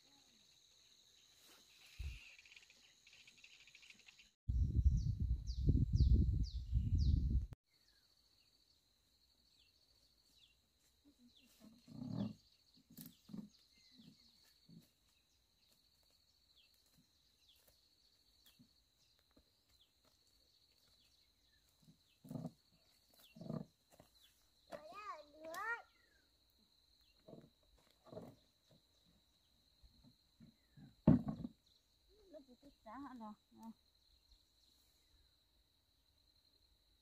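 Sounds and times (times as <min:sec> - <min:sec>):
bird chirps: 0:01.1 - 0:08.6.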